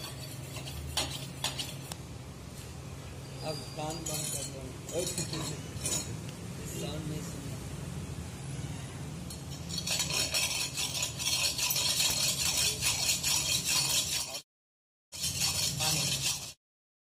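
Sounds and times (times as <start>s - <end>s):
cleaver scraping on sharpening stone: 0.0s - 2.0s, 3.6s - 6.1s, 9.3s - 14.4s, 15.2s - 16.6s.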